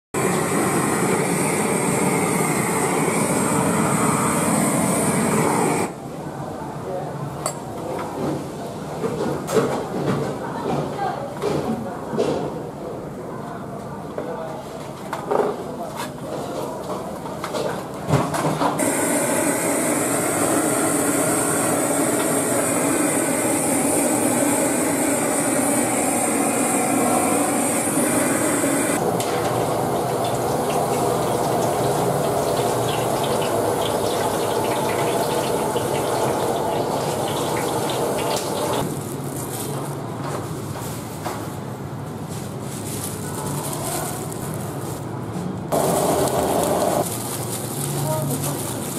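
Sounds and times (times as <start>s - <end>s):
steady rushing hiss: 45.7s - 48.0s.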